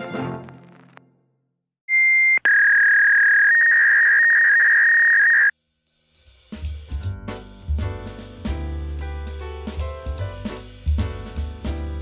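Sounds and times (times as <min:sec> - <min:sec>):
drum-led music: 0:05.6 - 0:12.0.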